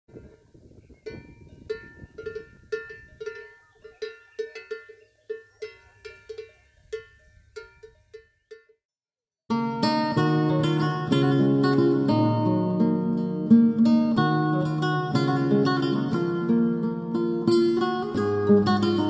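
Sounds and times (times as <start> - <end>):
cow bell clanking: 1.0 - 8.8.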